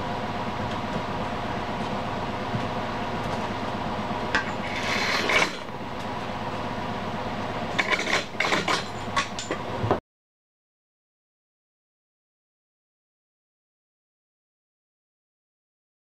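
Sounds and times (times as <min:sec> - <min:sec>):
machine hum: 0:00.0 - 0:10.0
metal tools clinking: 0:07.7 - 0:09.6.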